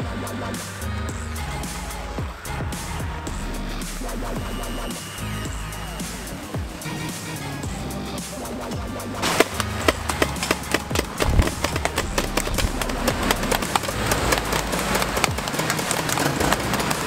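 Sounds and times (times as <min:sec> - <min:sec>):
diesel engine running: 0:07.4 - 0:17.0.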